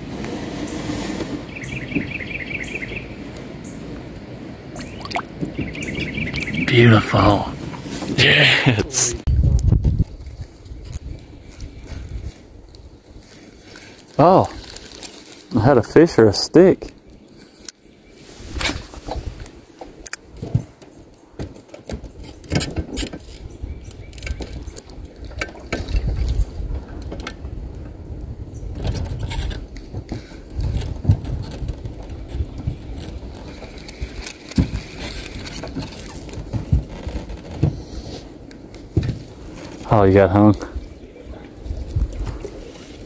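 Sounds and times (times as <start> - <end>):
knocks and scrapes in boat: 0.0 - 2.2, 7.6 - 8.2, 18.2 - 27.3, 28.7 - 40.6.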